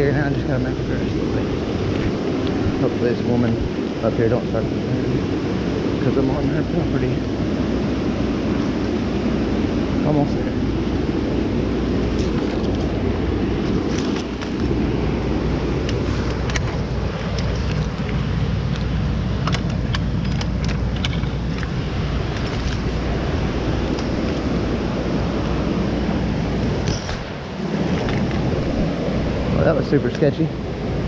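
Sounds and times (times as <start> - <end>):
low rumbling noise: 0.0 - 31.0
sharp clicks and rattles: 15.8 - 23.0.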